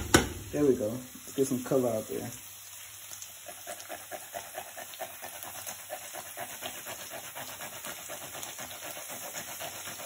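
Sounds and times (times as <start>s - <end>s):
frying pan sizzle: 0.0s - 10.0s
chili rasping on grater: 3.3s - 10.0s.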